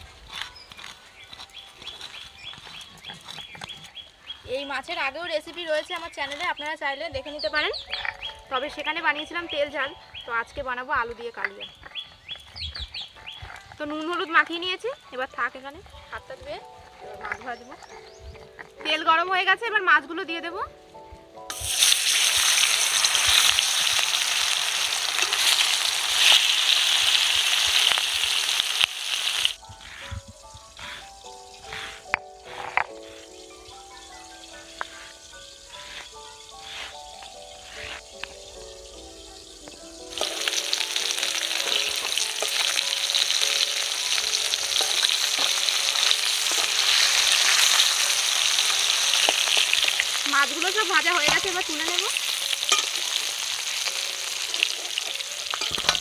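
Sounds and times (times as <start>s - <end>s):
soft background music: 0.0s - 56.0s
fish sizzling in hot oil: 21.4s - 56.0s.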